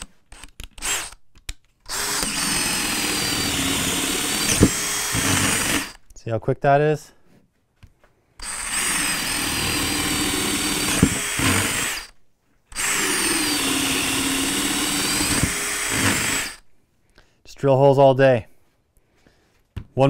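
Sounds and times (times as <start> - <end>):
cordless drill boring wood: 0.0 - 1.2, 1.9 - 6.0, 8.4 - 16.7.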